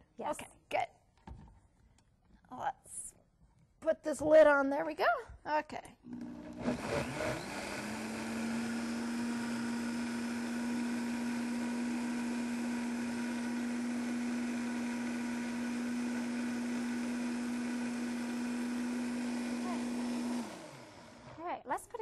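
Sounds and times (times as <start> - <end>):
blender running: 6.1 - 21.4.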